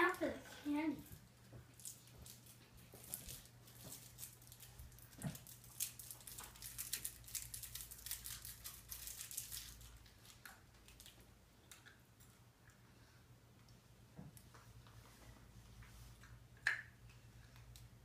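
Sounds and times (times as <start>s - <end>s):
candy wrappers crinkling and tearing: 1.7s - 11.2s.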